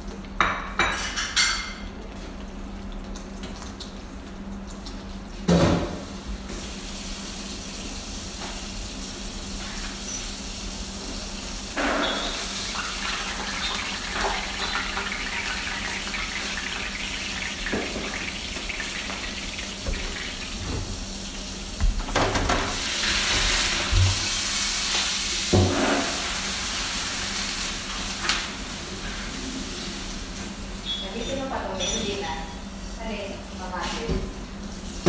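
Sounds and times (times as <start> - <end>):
tap water hissing on hot pan: 4.9 - 31.3
fish sizzling in a frying pan: 6.0 - 21.8, 22.6 - 32.0.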